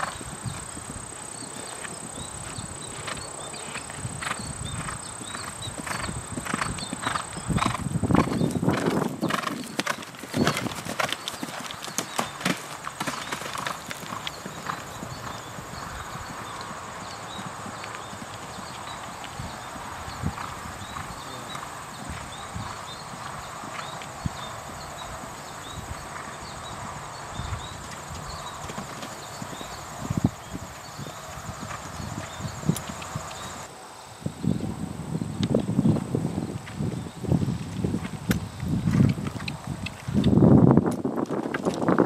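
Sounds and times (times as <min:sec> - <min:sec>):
horse hoofbeats on grass: 0:00.0 - 0:33.7, 0:35.5 - 0:42.0.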